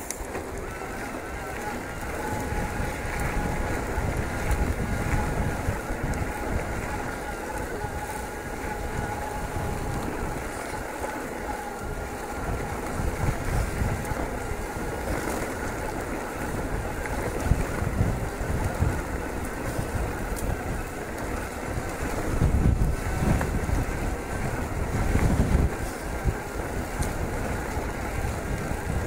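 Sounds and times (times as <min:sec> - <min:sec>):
bike tyres rolling on gravel: 0:00.0 - 0:29.0
wind buffeting microphone: 0:00.0 - 0:29.0.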